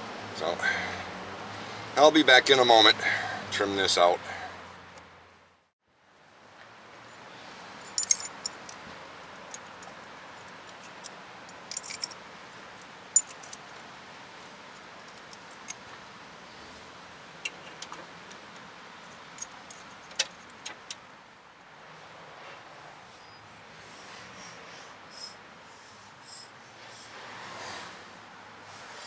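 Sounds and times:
metallic clinks of hand tools: 7.8 - 8.7, 10.8 - 12.2.

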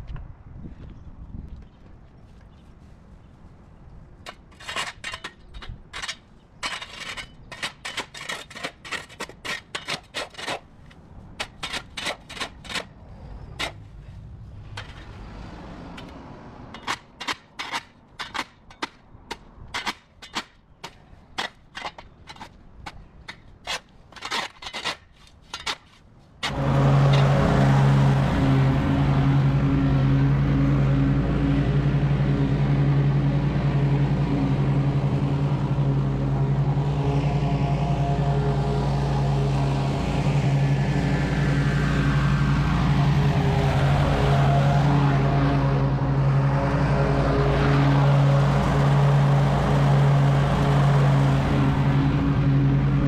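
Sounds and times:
shovel chopping and scraping dirt: 4.3 - 13.9, 15.9 - 27.5
engine running loudly: 26.5 - 53.0.

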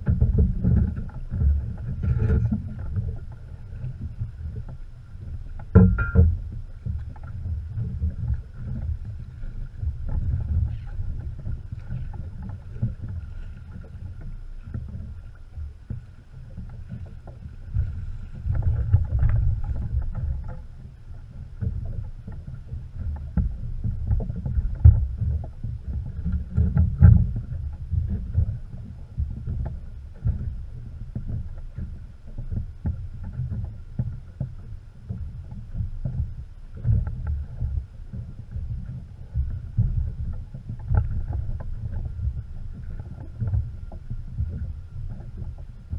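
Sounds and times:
low uneven rumble: 0.0 - 45.9
water sloshing against boat: 0.0 - 45.9
knocks and splashes: 5.6 - 9.1.

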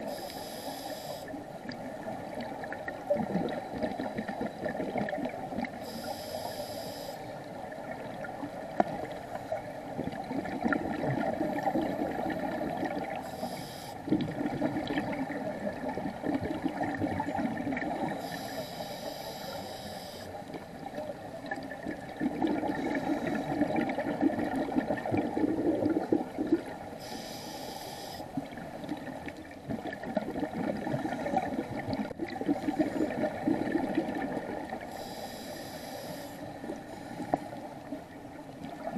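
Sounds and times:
regulator hissing inhale: 0.0 - 1.4, 5.8 - 7.4, 13.2 - 14.1, 18.1 - 20.4, 22.8 - 23.6, 27.0 - 28.4, 34.8 - 37.3
bubbling exhalations underwater: 22.2 - 26.7.

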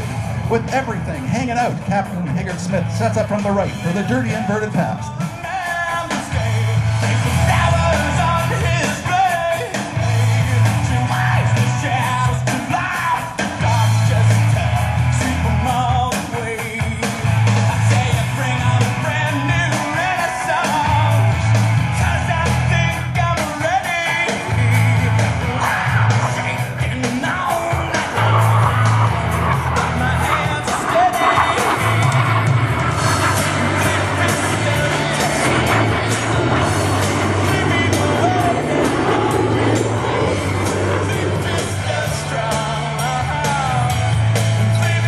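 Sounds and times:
heavy pulsing bass line: 0.0 - 5.3, 6.3 - 9.2, 9.9 - 12.6, 24.2 - 45.0
rock song with singing: 0.0 - 45.0.

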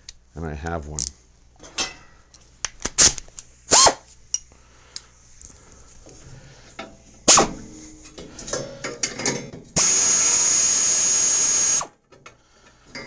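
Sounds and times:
air ratchet whining: 9.8 - 11.9.

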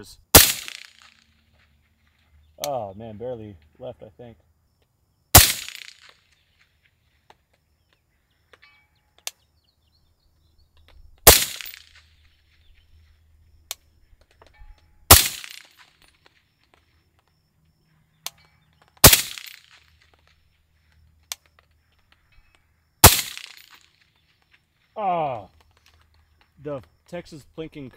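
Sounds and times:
suppressed rifle shots: 0.3 - 1.2, 5.3 - 6.2, 11.2 - 12.1, 15.1 - 15.8, 19.0 - 19.8, 23.0 - 23.9.

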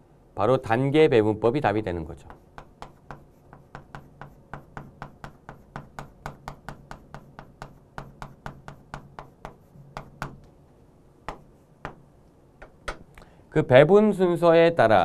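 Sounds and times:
chalk tapping on chalkboard: 2.0 - 10.6, 11.2 - 13.1.

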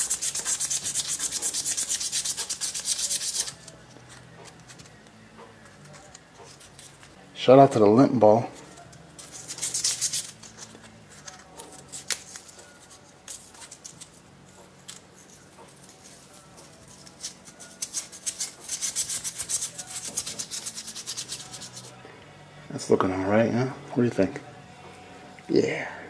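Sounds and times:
tools scratching on pocketknife: 0.0 - 4.9, 8.6 - 14.2, 14.8 - 21.9.

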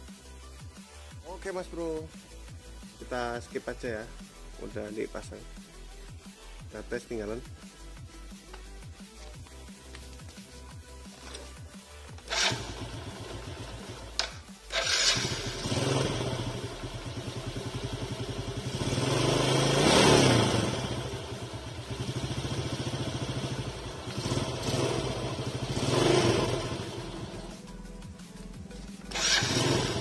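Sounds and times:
motorcycle engine starting and idling: 11.1 - 27.8, 28.7 - 30.0
motorcycle engine revving: 12.3 - 27.6, 29.1 - 30.0.

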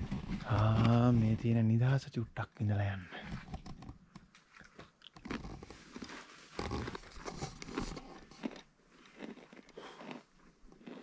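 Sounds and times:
person chewing a biscuit: 4.5 - 11.0.

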